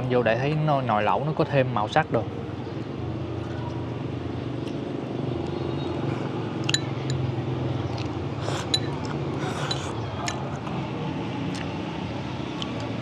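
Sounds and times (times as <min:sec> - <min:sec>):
utensils clinking on dishes: 0:06.7 - 0:07.2, 0:08.6 - 0:10.5.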